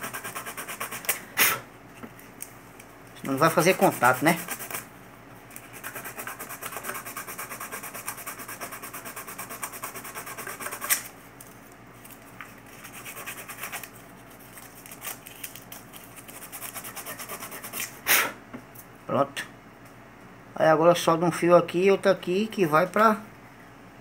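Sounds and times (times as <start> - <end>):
sandpaper scraping metal: 0.0 - 1.1, 3.5 - 4.8, 5.7 - 11.1, 12.8 - 13.9, 16.2 - 17.9.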